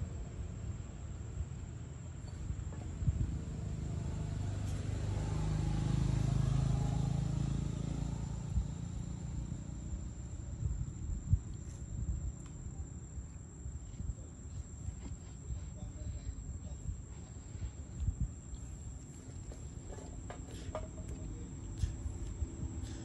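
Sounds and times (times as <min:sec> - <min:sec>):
high insect drone: 0:00.4 - 0:23.0
vehicle engine passing by: 0:02.9 - 0:11.1, 0:17.1 - 0:23.0.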